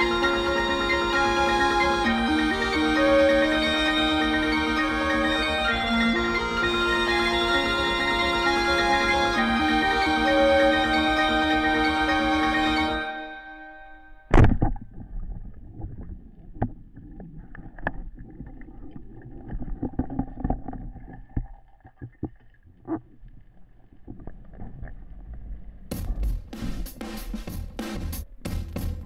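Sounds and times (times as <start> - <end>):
drum music: 0.0 - 13.2, 25.9 - 29.0
low underwater rumble: 14.3 - 29.0.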